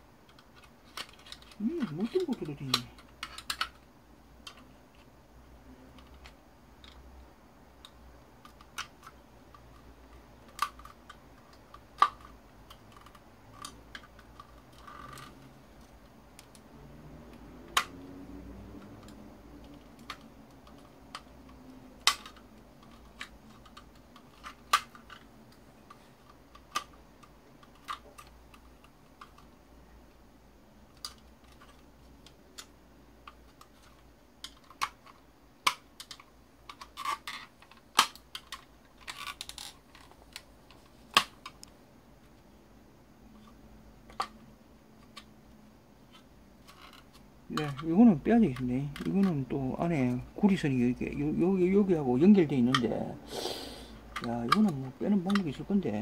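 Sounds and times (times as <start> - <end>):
hand tools clicking on parts: 46.7 - 49.5, 54.0 - 56.0.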